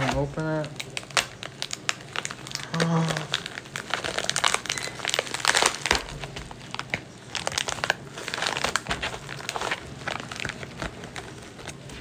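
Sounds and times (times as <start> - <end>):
plastic mailer crinkling: 0.0 - 12.0.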